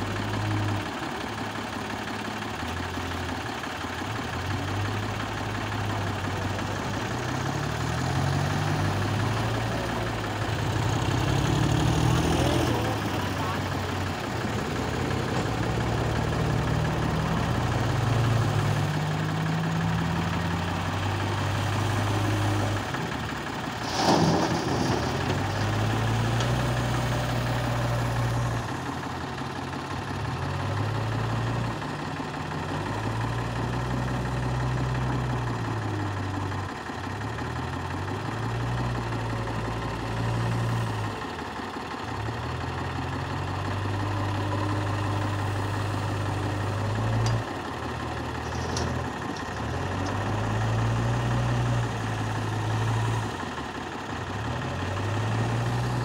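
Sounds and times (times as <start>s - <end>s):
backhoe engine revving: 0.0s - 56.0s
tractor engine idling: 0.0s - 56.0s
loud clatter: 23.7s - 26.8s, 48.2s - 50.4s.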